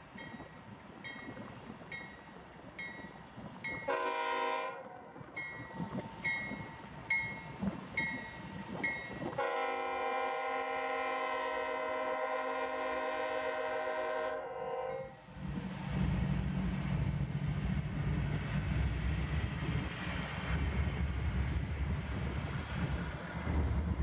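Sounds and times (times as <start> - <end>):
diesel locomotive engine rumble: 0.0 - 24.0
multi-note air horn blasts: 3.9 - 4.8, 9.4 - 15.2.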